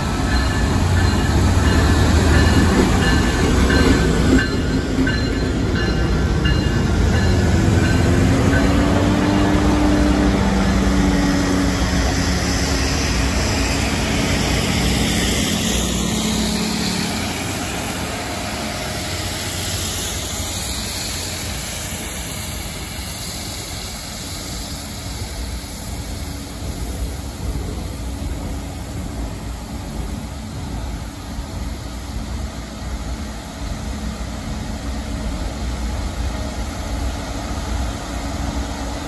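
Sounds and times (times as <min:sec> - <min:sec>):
train wheels rumbling on rails: 0:00.0 - 0:39.0
high-pressure water jets hissing: 0:12.1 - 0:31.4.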